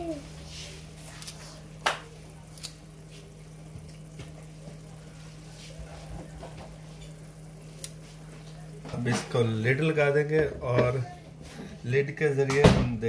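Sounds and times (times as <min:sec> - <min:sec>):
frying pan sizzling: 0:00.0 - 0:10.3
steady low hum: 0:00.0 - 0:13.0.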